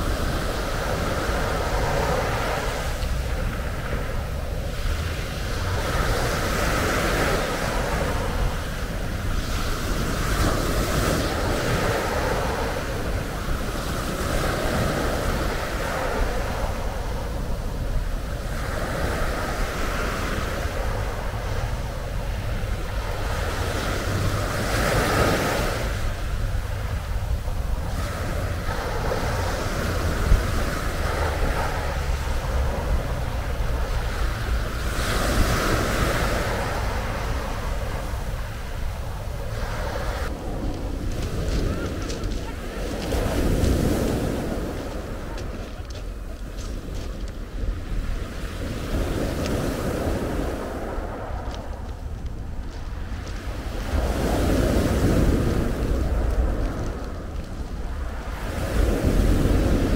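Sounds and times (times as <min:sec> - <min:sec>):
waves breaking on pebbles: 0:00.0 - 0:59.9
wind on microphone: 0:00.0 - 0:59.9.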